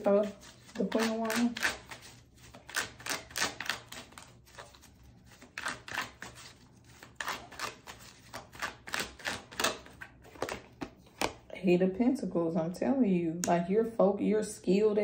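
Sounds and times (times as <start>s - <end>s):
cards clicking and tapping: 7.2s - 11.4s.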